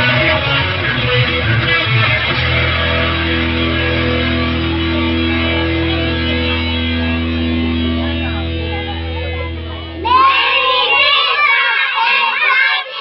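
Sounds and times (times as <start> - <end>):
recorded music with steady bass: 0.0 - 11.1
children shouting or singing: 7.2 - 13.0.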